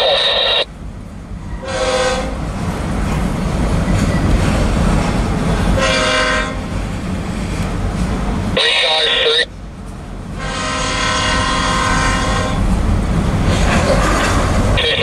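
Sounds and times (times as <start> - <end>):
freight train wheels rumbling: 0.0 - 15.0
locomotive horn blasts: 1.6 - 2.4, 5.8 - 6.7, 10.4 - 12.7.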